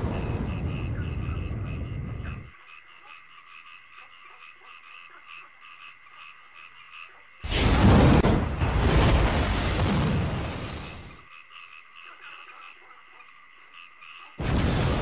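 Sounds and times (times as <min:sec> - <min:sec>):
frogs calling: 0:00.0 - 0:07.5, 0:10.9 - 0:14.9.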